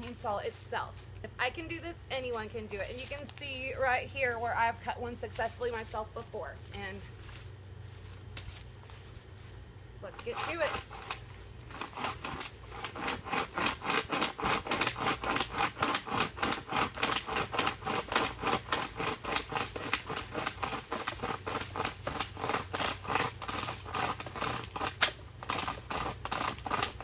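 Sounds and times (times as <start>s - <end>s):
chain saw rasping through wood: 10.0s - 27.0s
sharp wood crack: 10.3s - 27.0s.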